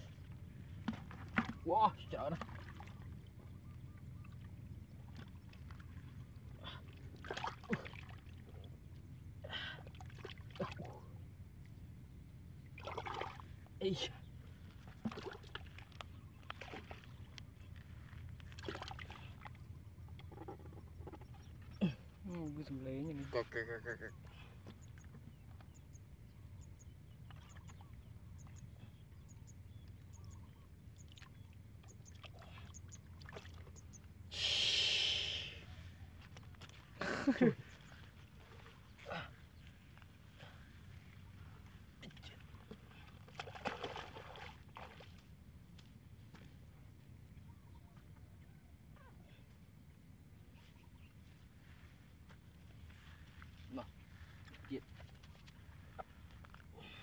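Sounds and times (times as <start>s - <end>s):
hands sloshing in muddy water: 0.0s - 8.8s, 9.4s - 11.3s, 12.6s - 22.2s, 30.6s - 34.1s, 35.8s - 46.8s
short splashes: 0.8s - 3.1s, 5.0s - 8.6s, 12.7s - 13.6s, 14.8s - 17.2s, 18.5s - 19.6s, 31.0s - 33.8s, 42.3s - 45.3s.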